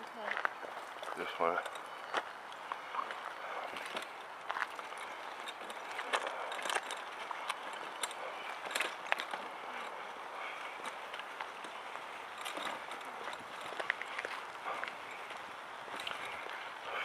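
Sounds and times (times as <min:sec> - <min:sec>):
wheelchair tyres rolling on concrete: 0:00.0 - 0:17.0
footsteps: 0:00.2 - 0:17.0
wheelchair frame clicks and rattles: 0:01.0 - 0:02.0, 0:03.0 - 0:15.2, 0:15.8 - 0:17.0.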